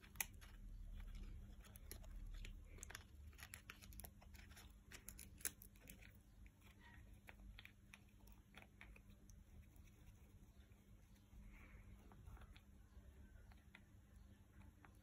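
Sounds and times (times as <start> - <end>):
beak cracking walnut shell: 0.0 - 9.1.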